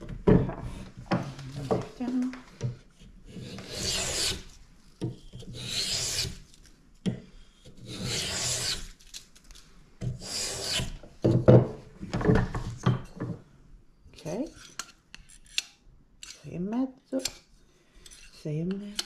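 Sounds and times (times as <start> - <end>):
hand plane shaving wood: 3.3 - 4.4, 7.8 - 8.8.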